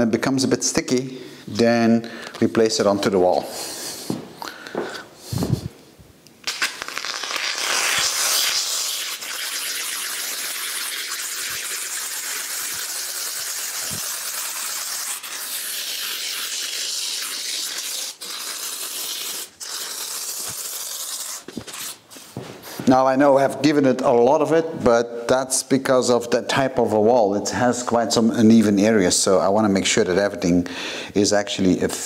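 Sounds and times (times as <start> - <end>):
aerosol foam hissing: 6.6 - 22.0.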